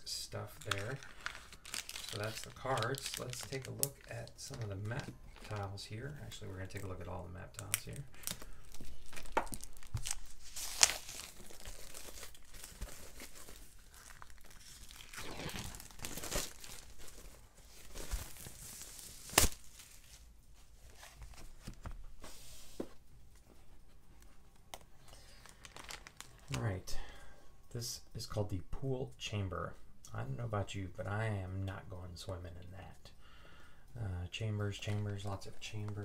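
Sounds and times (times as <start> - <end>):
packaging torn and crinkled: 0.4 - 5.8, 7.5 - 20.1, 25.2 - 26.7.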